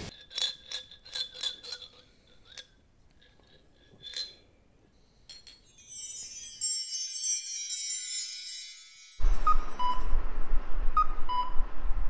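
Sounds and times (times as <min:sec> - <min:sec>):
high shimmering tones: 0:05.4 - 0:09.3.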